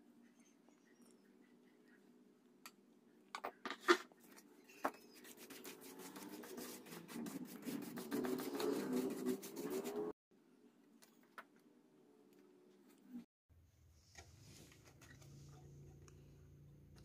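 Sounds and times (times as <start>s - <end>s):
brush scrubbing circuit board: 5.0s - 10.2s.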